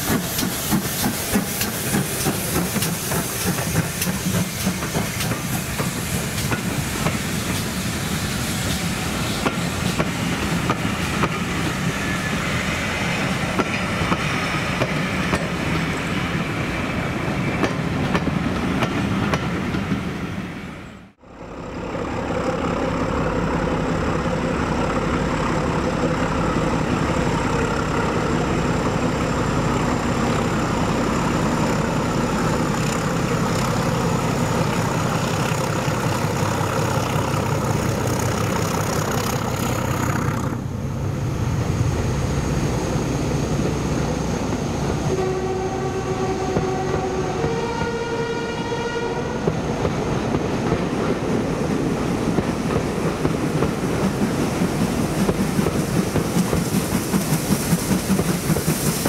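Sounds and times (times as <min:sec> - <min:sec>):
diesel train rumbling past: 0:00.0 - 0:59.0
two-tone train horn: 0:44.9 - 0:49.6.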